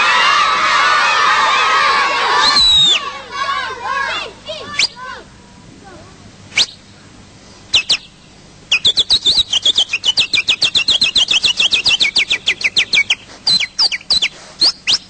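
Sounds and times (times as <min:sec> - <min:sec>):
man whistling bird chirps: 0:02.4 - 0:03.0, 0:06.6 - 0:06.8, 0:07.7 - 0:08.1, 0:08.7 - 0:15.0.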